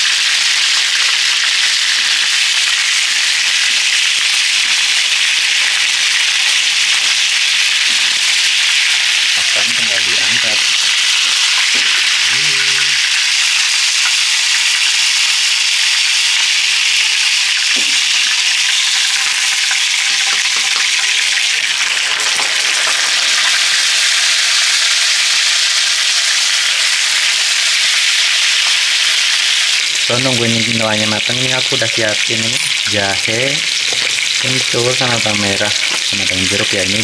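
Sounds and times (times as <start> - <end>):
fish sizzling in hot oil: 0.0 - 37.0.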